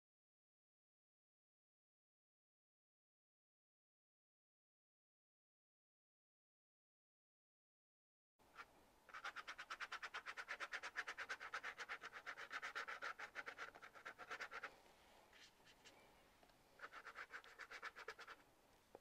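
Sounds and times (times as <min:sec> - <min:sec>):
paintbrush scrubbing on paper: 0:08.6 - 0:16.0, 0:16.8 - 0:18.4.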